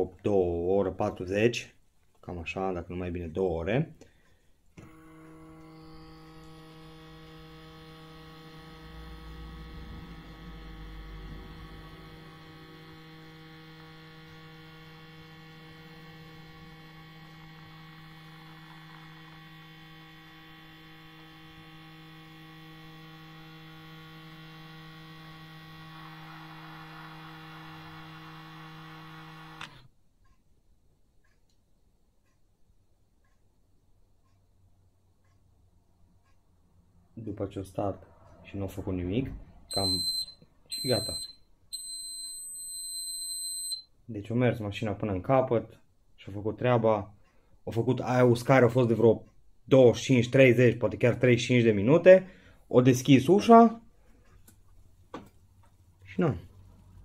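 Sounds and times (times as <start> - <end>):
dishwasher motor humming: 4.8 - 29.9.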